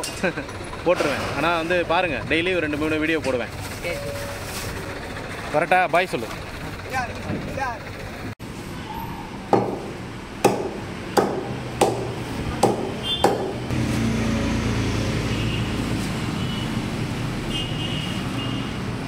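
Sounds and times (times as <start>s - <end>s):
cleaver chopping on block: 9.5s - 13.6s.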